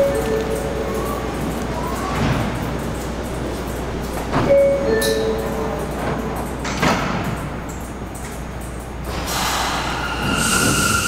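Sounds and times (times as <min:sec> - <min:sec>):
two-tone door chime: 0:04.3 - 0:06.3.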